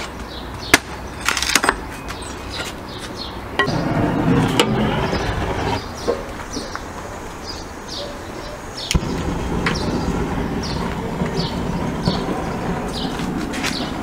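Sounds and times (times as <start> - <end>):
gas torch flame rushing: 3.6 - 6.4, 8.8 - 14.0.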